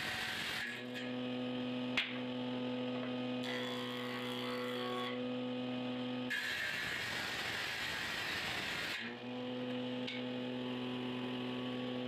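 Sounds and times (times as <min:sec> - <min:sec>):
electric motor humming: 0:09.2 - 0:12.0.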